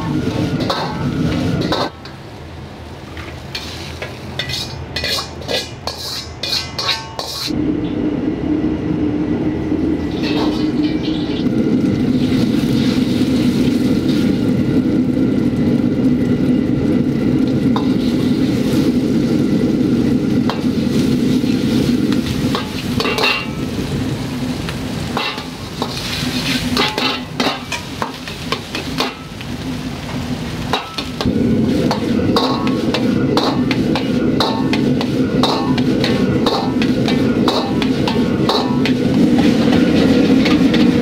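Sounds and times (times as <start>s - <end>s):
metal ladle scraping wok: 0.0s - 2.2s, 3.5s - 7.6s, 10.1s - 11.5s, 17.8s - 19.0s, 20.4s - 23.6s, 25.1s - 29.3s, 30.7s - 41.0s
food sizzling in a wok: 0.0s - 7.6s, 10.0s - 41.0s
low rushing noise: 7.5s - 24.5s.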